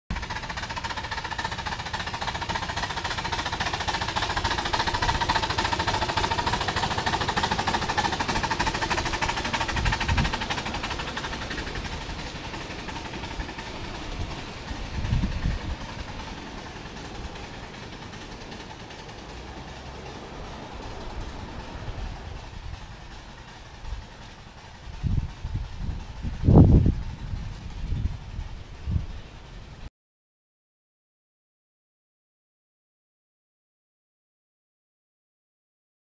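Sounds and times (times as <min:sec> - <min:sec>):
steam locomotive exhaust chatter: 0:00.1 - 0:29.9.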